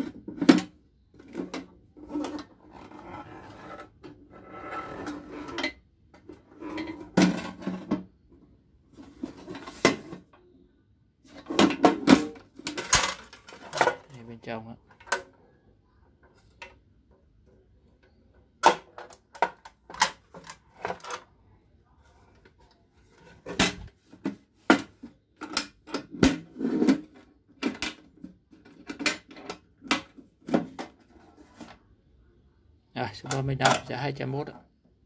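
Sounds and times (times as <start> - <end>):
metal toolbox clicks and knocks: 11.4 - 14.1.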